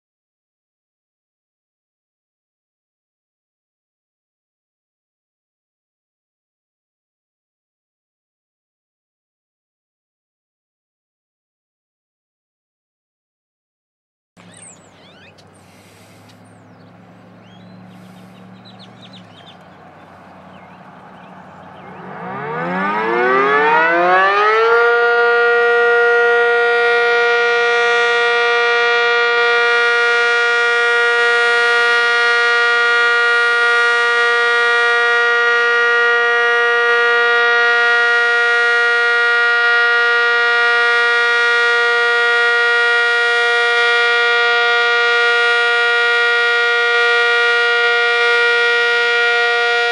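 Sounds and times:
warning siren winding up: 0:21.7 - 0:49.9.

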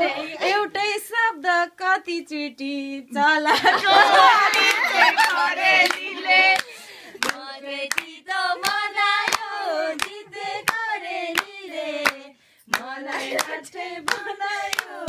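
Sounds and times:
people singing: 0:00.0 - 0:02.0, 0:02.8 - 0:15.0
rhythmic hand-clapping: 0:03.9 - 0:15.0.

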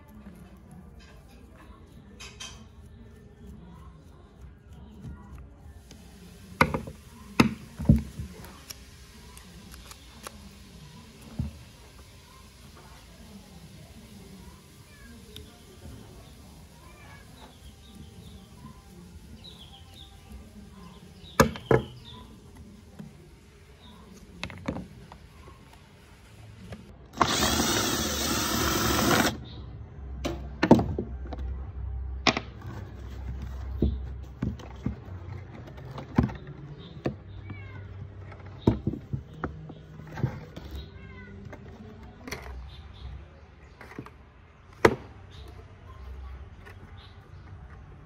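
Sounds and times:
loud steady hiss: 0:05.8 - 0:24.3, 0:25.2 - 0:29.4.

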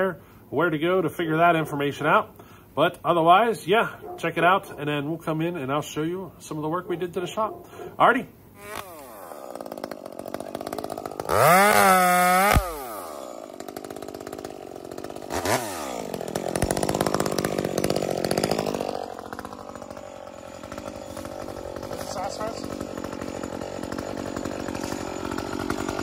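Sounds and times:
chainsaw revving and idling: 0:08.6 - 0:26.0.

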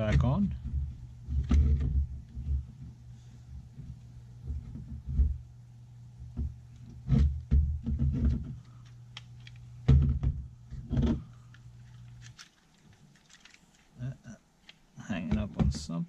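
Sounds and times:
low steady hum: 0:00.0 - 0:16.0
plastic panel knocks and clicks: 0:09.9 - 0:11.2.

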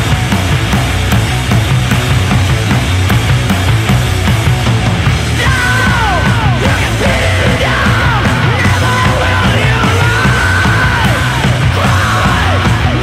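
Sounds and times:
loud rock music: 0:00.0 - 0:13.0
person yelling vocals: 0:05.4 - 0:13.0.

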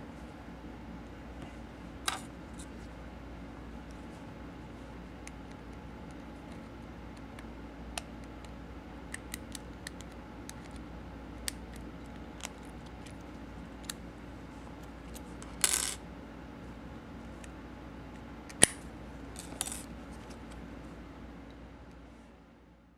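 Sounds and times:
sharp padlock click: 0:18.5 - 0:18.8.

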